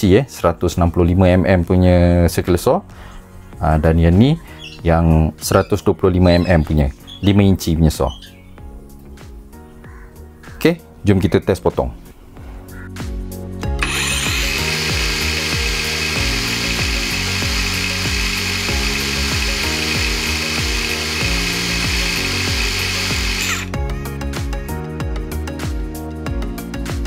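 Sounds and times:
background music: 0:00.0 - 0:27.0
circular saw whine: 0:13.8 - 0:23.7.

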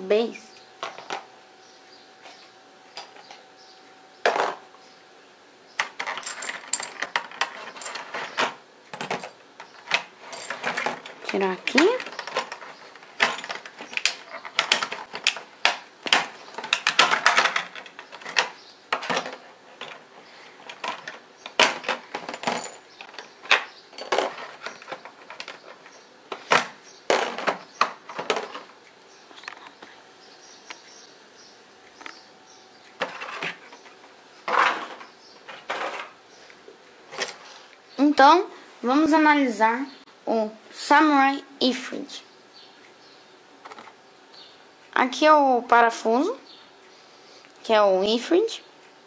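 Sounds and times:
plastic parts clicking and clattering: 0:04.2 - 0:04.6, 0:05.8 - 0:29.9, 0:32.9 - 0:36.2.

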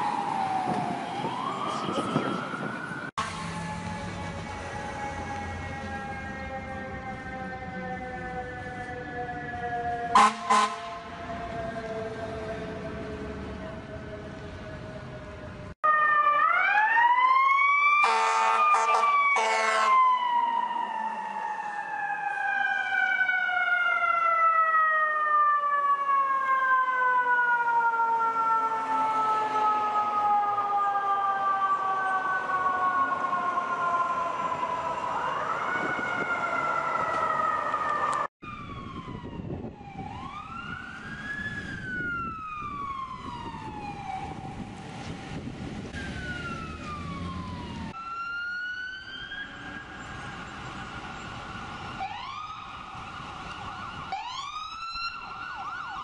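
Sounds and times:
distant siren wailing: 0:00.0 - 0:56.0
fire truck siren wailing: 0:00.0 - 0:56.0
traffic noise: 0:00.0 - 0:56.0
horn blasts: 0:10.2 - 0:11.1, 0:18.0 - 0:20.0.

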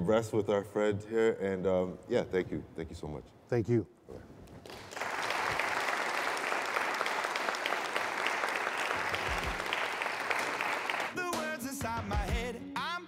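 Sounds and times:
hand clapping applause: 0:04.6 - 0:11.7.

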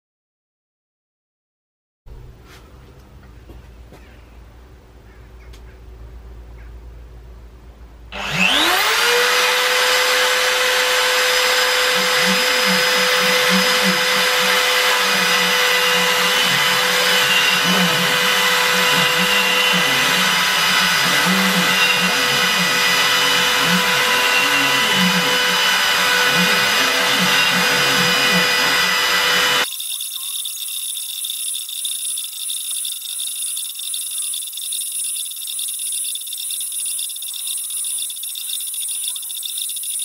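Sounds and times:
router cutting wood: 0:08.1 - 0:29.7
router spindle whine: 0:08.1 - 0:40.0.

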